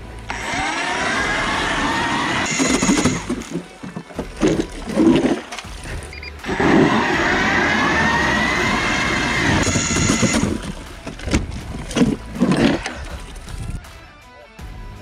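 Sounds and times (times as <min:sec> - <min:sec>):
electric ice auger whining: 0:00.2 - 0:03.7, 0:06.4 - 0:10.8
ice crunching and knocking: 0:02.5 - 0:07.3, 0:08.8 - 0:13.8.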